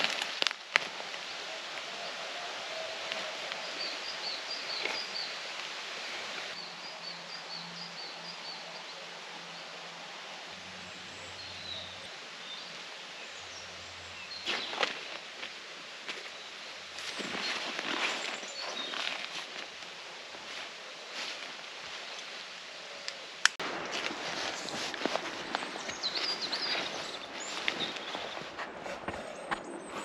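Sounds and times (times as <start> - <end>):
steady background hiss: 0.0 - 28.7
rustling in dry leaves: 0.0 - 29.4
footsteps: 23.6 - 30.0
bird chirping: 24.4 - 30.0.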